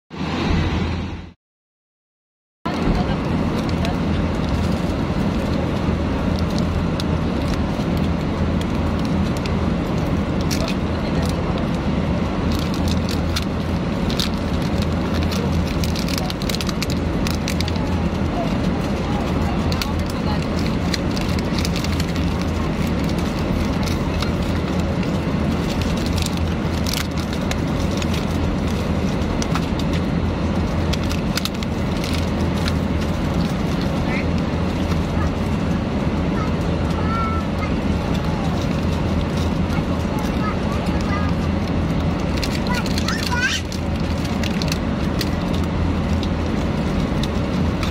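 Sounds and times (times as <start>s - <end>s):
airliner cabin drone: 0.1s - 1.4s, 2.7s - 47.9s
plastic wrapper crinkling: 12.5s - 30.0s, 30.6s - 35.6s, 41.6s - 47.9s.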